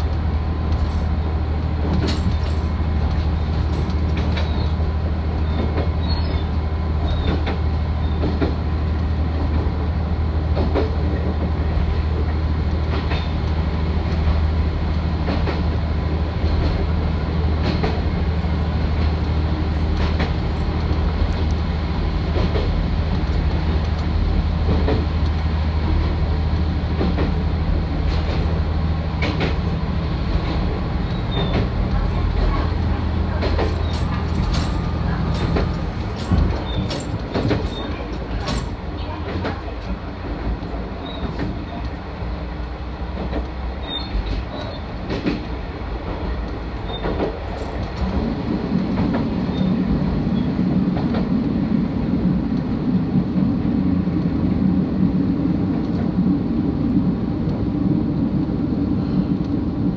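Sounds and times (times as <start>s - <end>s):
wheel-on-rail rumble: 0.0s - 59.9s.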